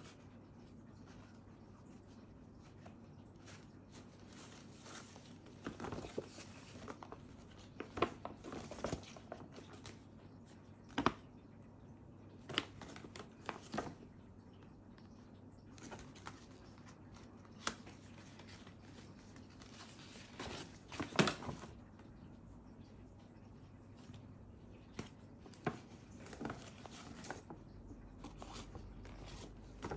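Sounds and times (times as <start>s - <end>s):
paper gift bag rustling: 2.6s - 10.0s, 15.7s - 21.9s, 24.2s - 29.9s.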